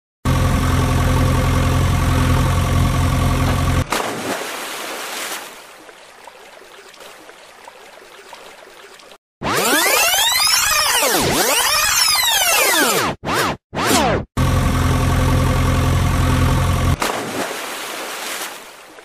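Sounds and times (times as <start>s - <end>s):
engine running: 0.2s - 4.5s, 14.0s - 17.6s
water sloshing: 3.5s - 9.2s, 17.0s - 19.0s
toy splashing into water: 3.8s - 9.2s, 17.0s - 19.0s.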